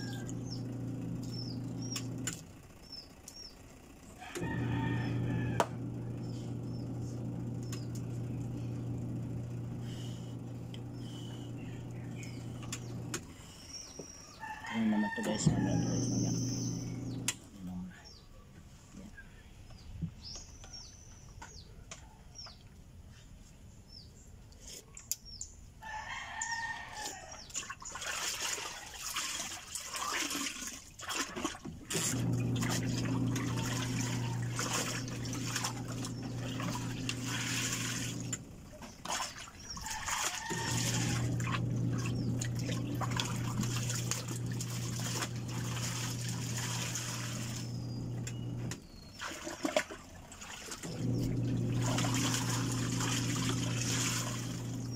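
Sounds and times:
rooster crowing: 0:00.0 - 0:00.6, 0:04.1 - 0:05.9, 0:14.3 - 0:16.5, 0:25.8 - 0:27.4, 0:39.8 - 0:41.7
small bird chirps: 0:00.0 - 0:02.1, 0:15.3 - 0:17.3
steady low hum: 0:00.0 - 0:14.0, 0:14.9 - 0:17.9, 0:32.0 - 0:39.6, 0:40.5 - 0:48.8, 0:50.8 - 0:54.9.

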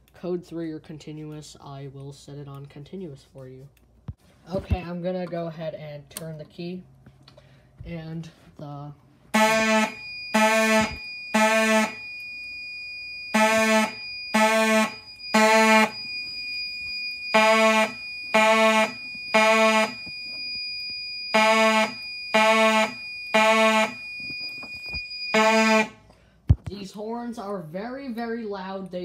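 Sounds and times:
fire alarm horns buzzing: 0:09.3 - 0:26.1.

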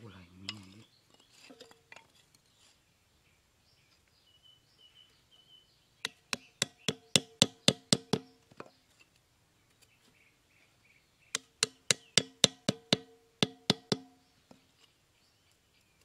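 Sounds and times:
hatchet hammering wooden stakes: 0:06.0 - 0:08.7, 0:11.4 - 0:14.2.

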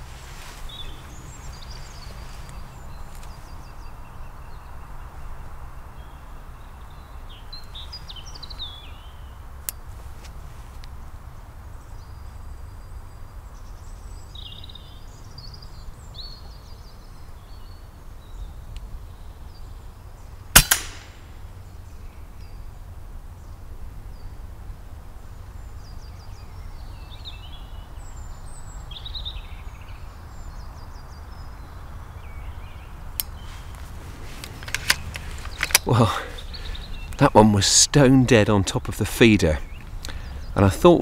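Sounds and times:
air rifle shot: 0:20.6 - 0:21.4
birds chirping and singing: 0:25.6 - 0:41.0.

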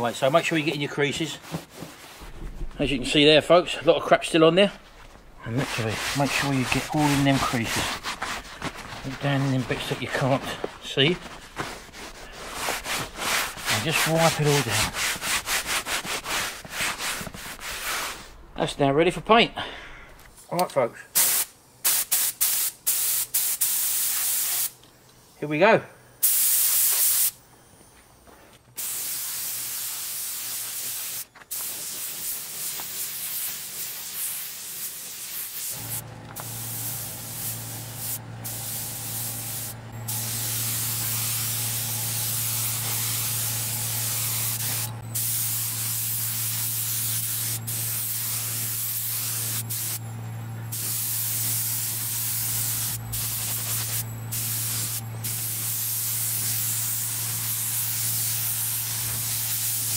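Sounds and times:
low motor hum: 0:02.2 - 0:04.0, 0:35.8 - 0:45.2, 0:49.6 - 0:53.4
spray gun hissing: 0:05.4 - 0:10.7, 0:21.2 - 0:24.8, 0:26.2 - 0:27.4, 0:28.8 - 0:50.0, 0:50.7 - 0:59.9.

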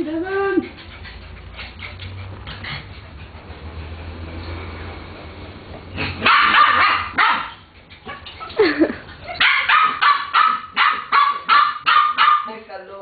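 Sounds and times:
dogs barking: 0:06.0 - 0:08.5, 0:09.3 - 0:12.6.

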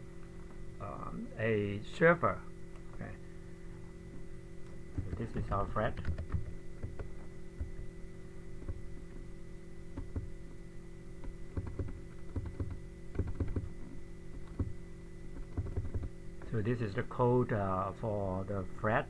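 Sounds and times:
electrical hum: 0:00.0 - 0:19.0
keyboard keystrokes: 0:04.9 - 0:07.7, 0:10.0 - 0:10.3, 0:11.2 - 0:13.7, 0:14.4 - 0:14.7, 0:15.4 - 0:16.1.

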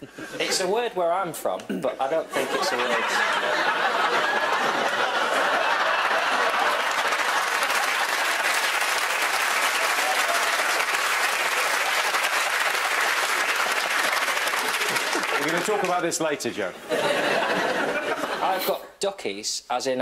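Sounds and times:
audience laughter: 0:02.3 - 0:10.7, 0:14.5 - 0:15.9, 0:16.8 - 0:18.6
audience applauding: 0:03.0 - 0:16.2.

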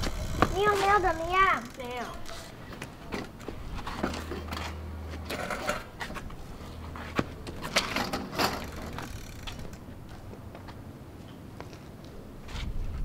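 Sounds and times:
bicycle frame rattling: 0:00.0 - 0:02.6, 0:06.8 - 0:09.9.

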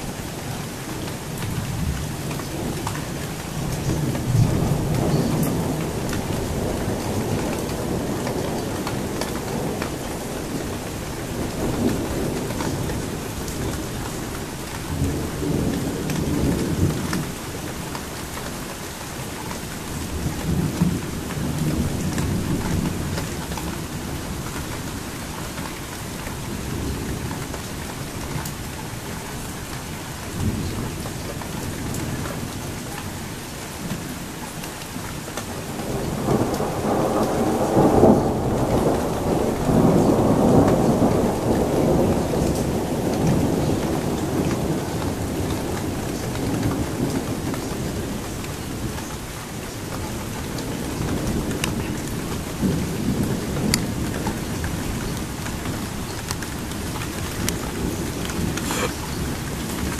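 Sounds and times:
heavy rain hissing: 0:34.9 - 0:59.9
thunder rumbling: 0:35.8 - 0:49.0.

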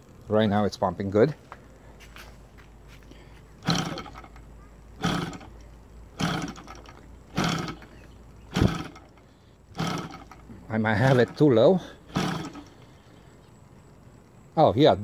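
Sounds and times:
radial engine turning through compression: 0:03.5 - 0:14.1.

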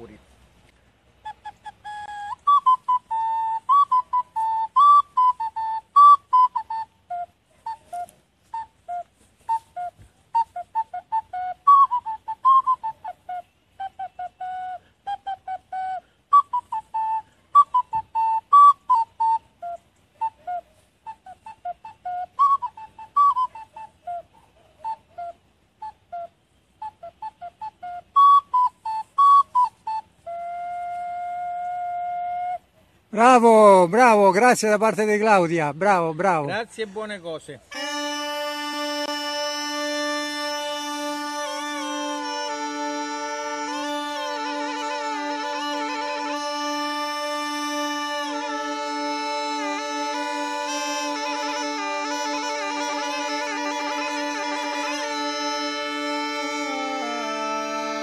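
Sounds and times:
ocarina short notes: 0:37.6 - 0:58.0.

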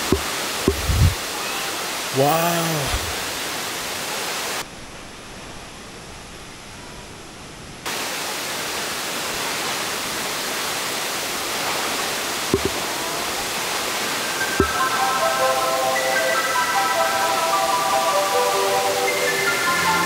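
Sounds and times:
waterfall rushing onto rocks: 0:00.0 - 0:04.6, 0:07.9 - 0:16.0.

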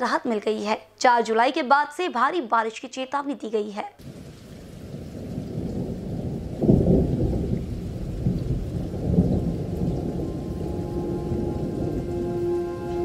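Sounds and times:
muffled rain hiss: 0:03.9 - 0:13.0
thunder rumble: 0:04.0 - 0:13.0.

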